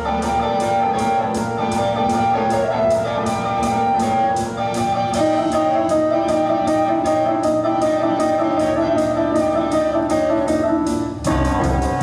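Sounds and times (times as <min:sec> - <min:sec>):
guitar-led band music: 0:00.0 - 0:12.0.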